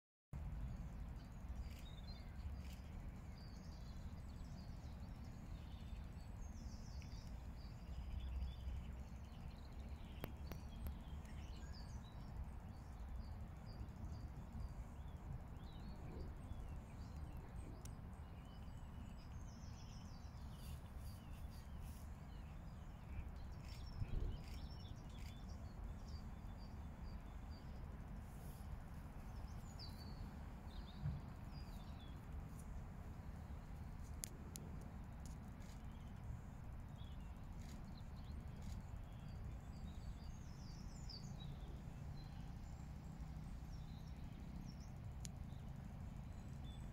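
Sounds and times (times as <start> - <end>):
low background rumble: 0.4 - 46.9
small birds chirping: 0.4 - 46.9
soft low thump: 30.9 - 31.4.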